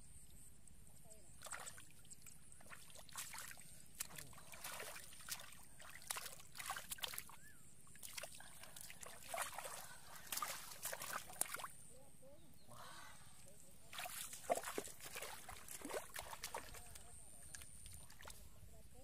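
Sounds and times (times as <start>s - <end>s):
hands splashing in muddy water: 1.4s - 11.7s, 13.9s - 18.4s.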